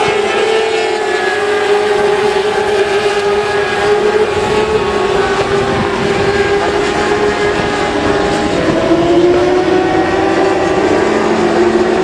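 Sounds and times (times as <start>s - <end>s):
motorcycles passing at high revs: 0.0s - 12.0s.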